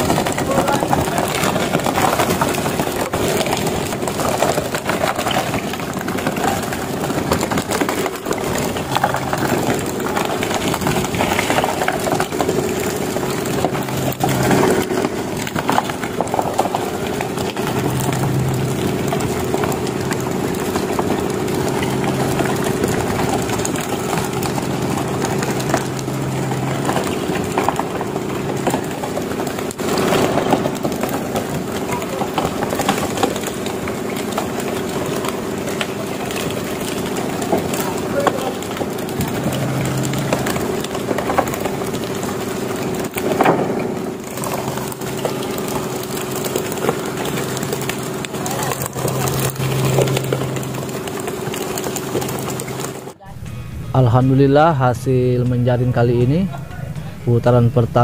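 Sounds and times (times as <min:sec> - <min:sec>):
boat engine humming: 0:00.0 - 0:58.0
low drone: 0:00.0 - 0:58.0.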